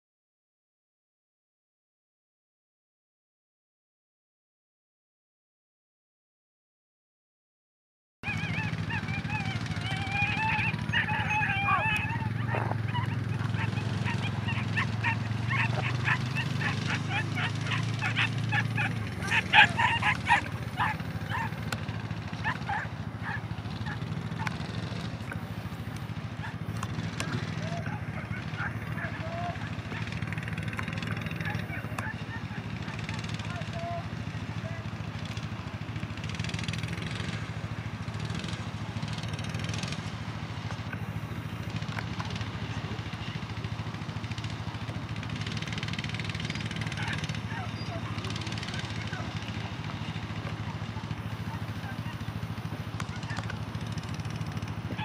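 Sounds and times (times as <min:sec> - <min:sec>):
dogs barking and yipping: 0:08.2 - 0:35.8, 0:36.8 - 0:55.0
engine humming steadily: 0:08.2 - 0:55.0.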